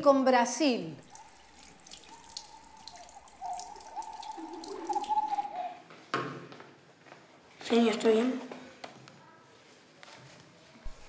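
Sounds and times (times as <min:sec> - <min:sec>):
water dripping and trickling: 0:00.9 - 0:05.8
thin whistling tone: 0:01.0 - 0:05.8.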